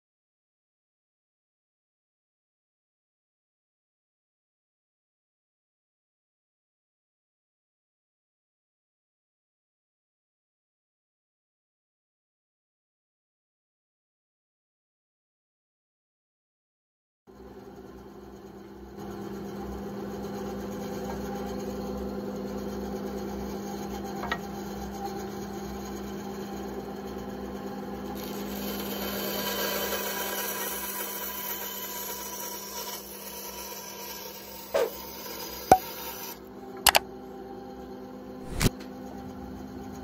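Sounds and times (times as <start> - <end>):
band saw motor hum: 17.4 - 40.0
saw blade cutting wood: 22.7 - 26.3, 28.1 - 37.0, 38.4 - 38.8.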